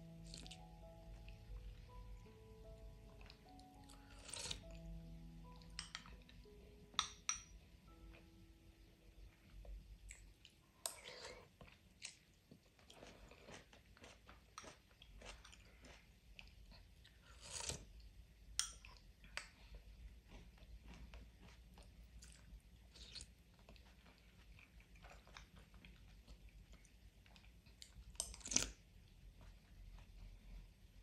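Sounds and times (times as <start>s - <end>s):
spoon clinking on bowl: 6.9s - 7.7s.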